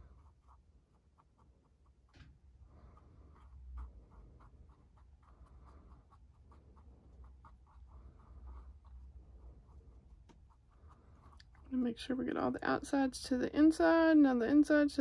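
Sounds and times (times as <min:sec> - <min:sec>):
low steady hum: 0:00.0 - 0:15.0
toothpick scratching and tapping: 0:09.7 - 0:11.7.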